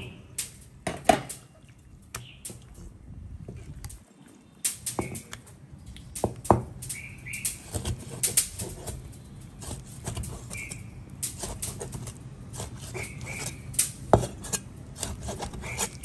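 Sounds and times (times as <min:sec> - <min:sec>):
bird chirps: 0:02.2 - 0:02.6, 0:06.8 - 0:07.6, 0:10.4 - 0:11.0.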